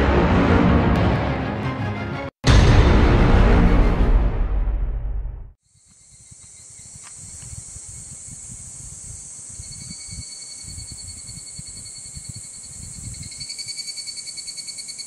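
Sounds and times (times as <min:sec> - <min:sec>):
insects chirring: 0:05.6 - 0:15.0.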